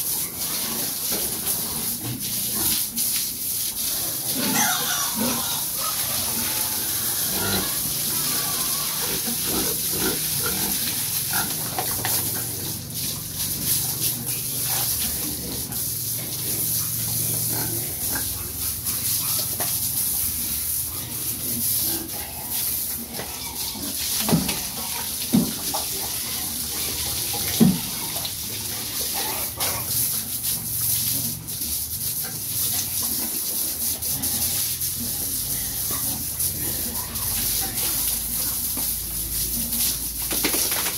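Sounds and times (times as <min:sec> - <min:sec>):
hose water spraying: 0:00.0 - 0:40.9
pigs grunting: 0:04.0 - 0:19.6, 0:21.0 - 0:30.0, 0:34.1 - 0:38.6.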